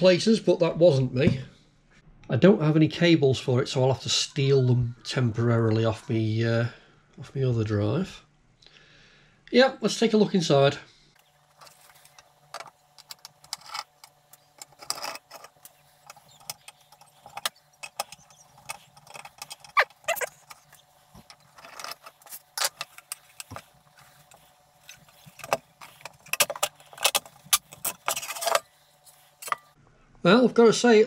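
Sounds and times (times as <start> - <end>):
metal cover handled: 12.5 - 29.8.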